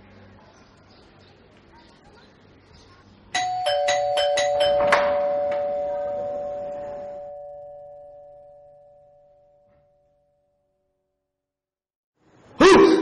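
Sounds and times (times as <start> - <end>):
two-tone doorbell chime: 3.4 - 10.5.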